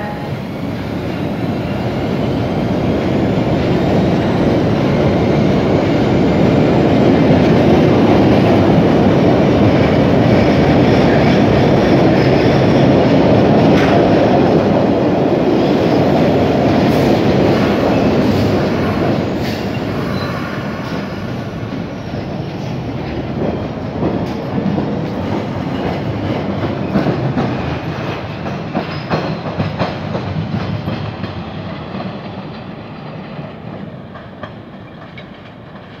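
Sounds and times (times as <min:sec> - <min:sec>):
subway train rumble: 0:00.0 - 0:36.0
wheels clacking on rail joints: 0:03.1 - 0:36.0.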